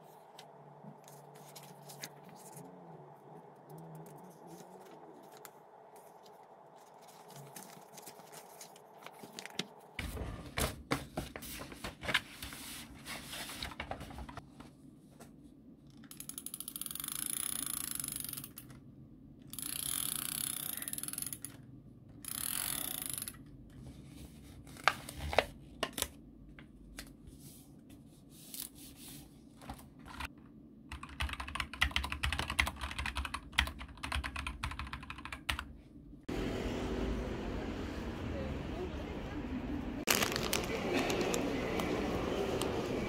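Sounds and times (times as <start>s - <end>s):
computer keyboard typing: 30.9s - 35.7s.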